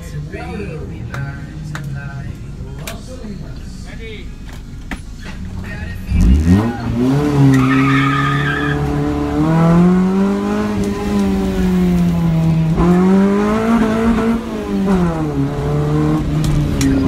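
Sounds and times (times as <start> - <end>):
tyres squealing: 5.1 - 9.4
car engine revving hard: 6.0 - 17.0.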